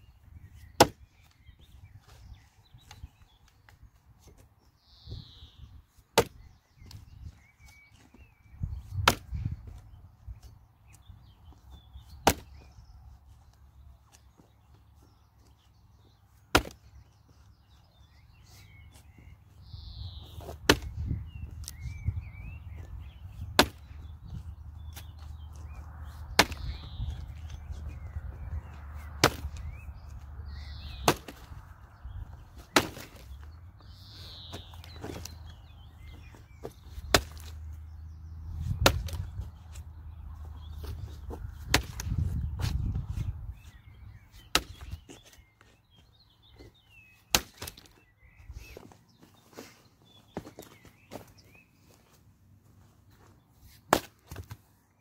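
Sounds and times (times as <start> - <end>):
axe chopping into log: 0.8 - 1.0, 6.1 - 6.4, 8.9 - 9.4, 12.2 - 12.6, 16.5 - 16.8, 20.4 - 21.8, 23.5 - 23.9, 26.3 - 27.0, 29.0 - 29.8, 30.9 - 31.5, 32.6 - 33.3, 37.0 - 37.6, 38.7 - 39.3, 41.6 - 42.8, 44.5 - 45.0, 47.3 - 47.9, 53.9 - 54.6.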